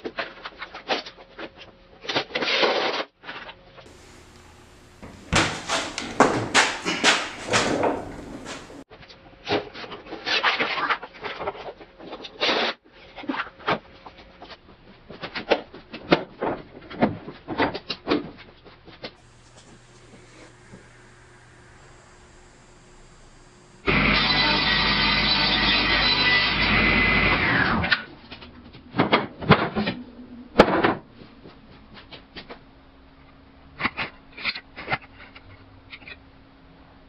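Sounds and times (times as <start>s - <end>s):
impact driver hammering: 3.9s - 8.8s.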